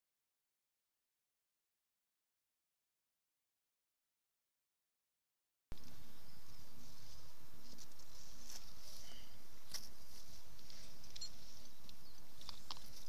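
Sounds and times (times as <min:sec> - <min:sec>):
steady outdoor hiss: 0:05.8 - 0:13.0.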